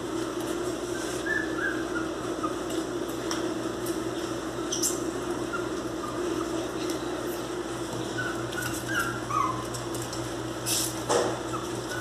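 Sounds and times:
steady background hum: 0.0s - 12.0s
puppies squeaking: 0.9s - 2.9s, 4.5s - 12.0s.

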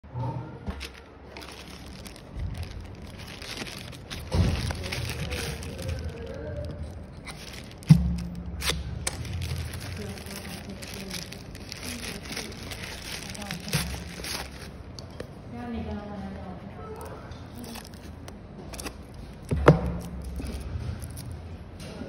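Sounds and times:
plastic bag crinkling: 0.7s - 15.1s, 17.4s - 21.4s.

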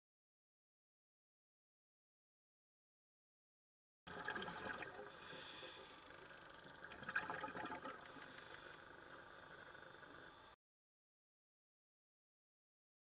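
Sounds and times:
water swishing and bubbling: 4.1s - 10.6s.

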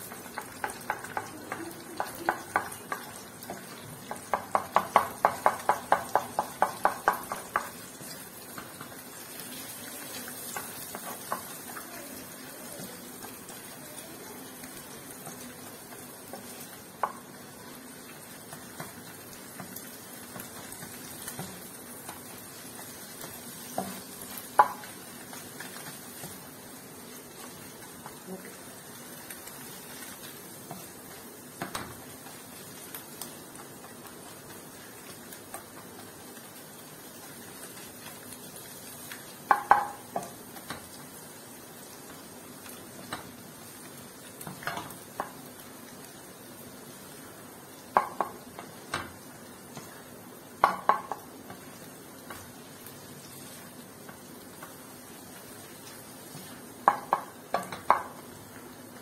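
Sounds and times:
spatula clacking against pan: 0.0s - 9.0s, 10.4s - 11.8s, 18.5s - 26.4s, 39.4s - 40.9s, 47.9s - 49.9s, 50.6s - 51.6s, 56.8s - 58.3s
oil sizzling: 0.0s - 59.0s.

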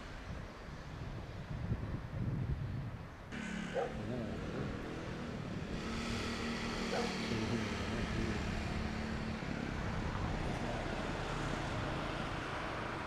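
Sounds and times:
distant engine humming: 3.3s - 13.0s
outdoor rumble: 3.3s - 13.0s.

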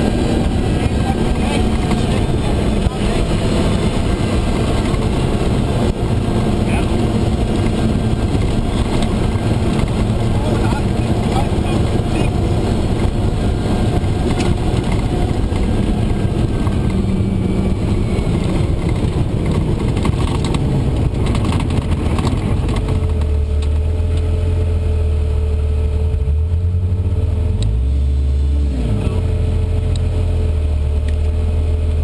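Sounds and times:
knocks and rattles over bumps: 0.0s - 17.1s, 17.8s - 24.2s
truck engine and drivetrain: 0.0s - 32.0s.

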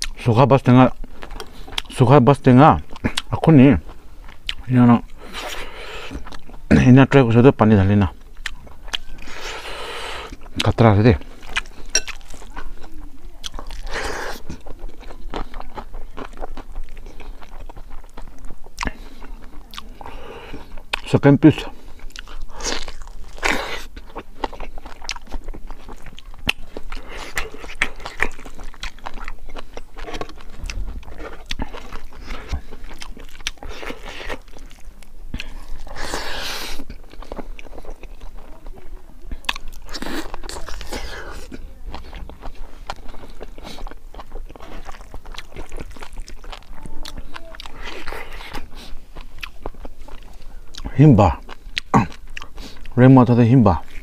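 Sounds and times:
chewing and crunching: 0.0s - 54.0s
wet mouth and lip clicks: 22.1s - 38.4s, 39.4s - 53.0s.

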